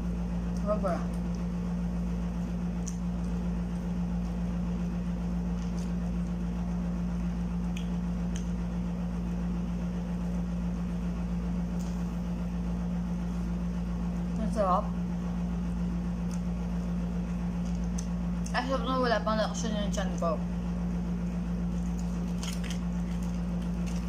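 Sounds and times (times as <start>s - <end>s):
low machine hum: 0.0s - 24.0s
soft chewing clicks: 2.3s - 4.4s, 5.5s - 8.6s, 15.7s - 16.5s, 17.6s - 18.6s.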